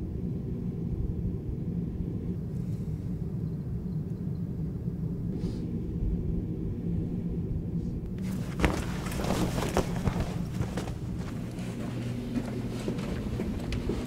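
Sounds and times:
steady low hum: 0.0 - 14.0
clothing and bag rustling: 8.2 - 14.0.

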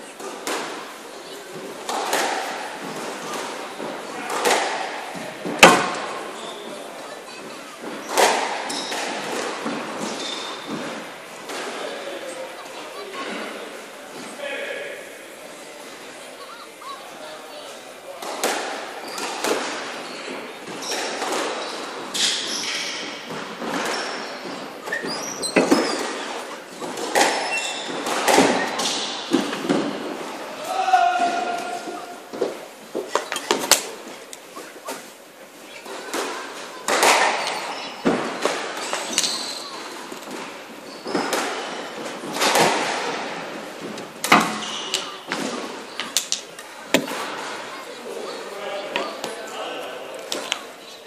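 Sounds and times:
squash ball hits echoing: 1.9 - 6.3, 8.0 - 11.8, 23.3 - 32.5, 36.1 - 39.4, 41.0 - 45.8, 46.9 - 47.6
squash ball knocks echoing: 4.2 - 6.3, 46.9 - 47.5
shoes squeaking on court floor: 6.0 - 11.0, 18.9 - 30.0, 31.3 - 42.3, 44.4 - 50.5.

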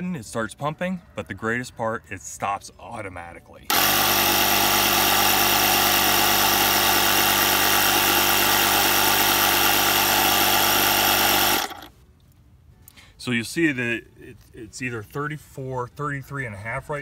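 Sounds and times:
tyre inflator compressor running: 3.7 - 11.9.

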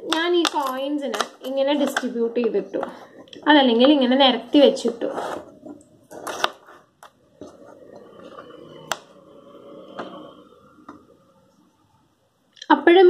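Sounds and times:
coins sliding on surface: 6.1 - 6.9.

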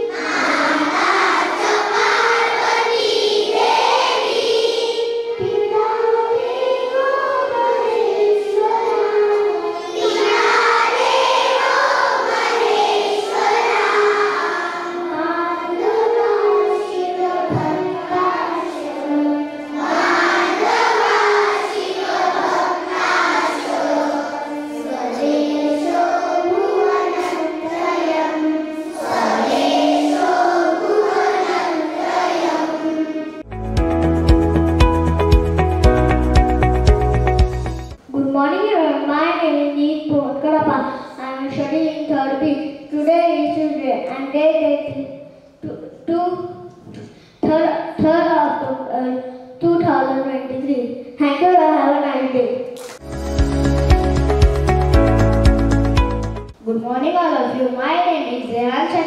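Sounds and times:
girls singing in unison: 0.0 - 33.4.

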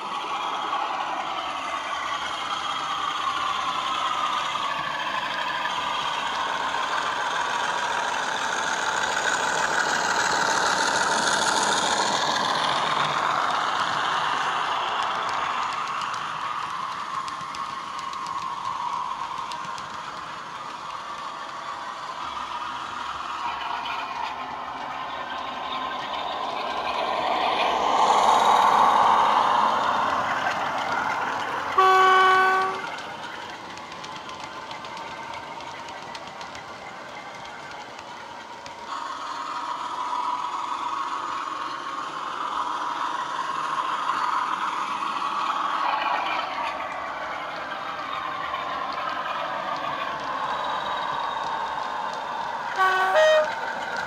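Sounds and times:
model train diesel engine sound: 0.0 - 54.0
train horn blast: 31.8 - 32.9, 52.8 - 53.6.

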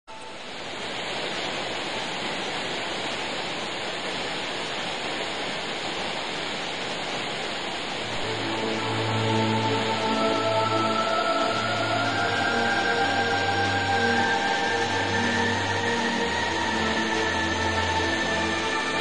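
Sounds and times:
rush of flowing water: 0.1 - 19.0
music: 8.1 - 19.0.

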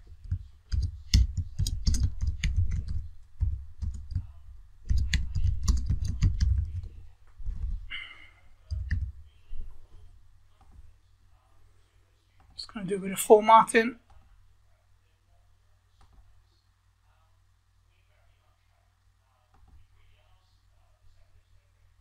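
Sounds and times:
computer keyboard typing: 0.0 - 7.0, 8.7 - 9.1.

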